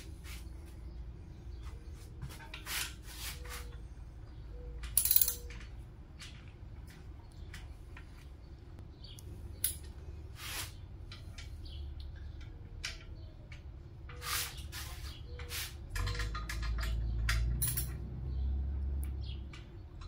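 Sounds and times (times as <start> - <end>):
metal tools clinking and scraping: 4.6 - 6.4, 9.6 - 10.0, 14.1 - 18.1.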